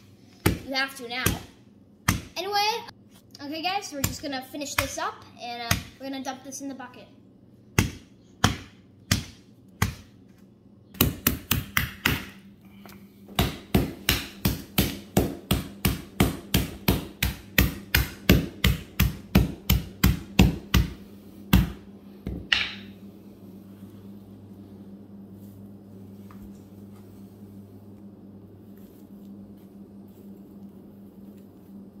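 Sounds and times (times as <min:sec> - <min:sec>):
mallet pounding charcoal on concrete: 0:11.0 - 0:12.4, 0:13.3 - 0:21.8.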